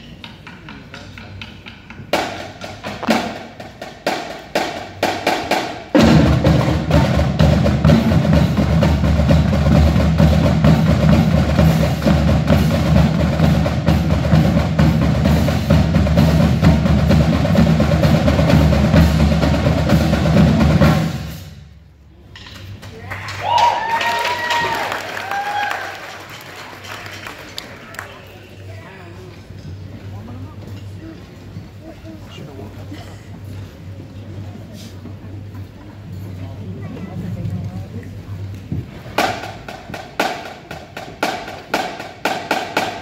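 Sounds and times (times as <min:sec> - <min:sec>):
marching snare and bass drums: 0:00.4 - 0:21.5, 0:38.7 - 0:43.0.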